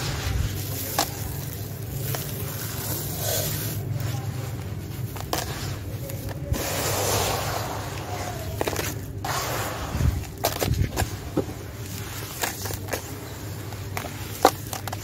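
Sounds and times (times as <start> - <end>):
gritty hiss of falling grains: 0.0 - 8.3.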